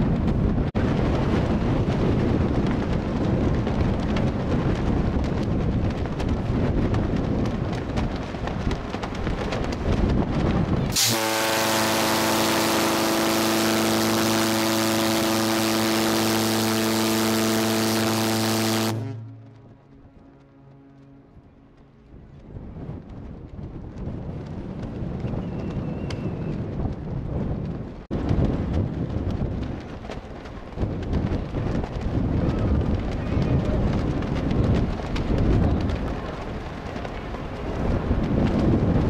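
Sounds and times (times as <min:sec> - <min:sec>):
wind buffeting microphone: 0:00.0 - 0:39.0
deep ship horn blast: 0:10.9 - 0:22.0.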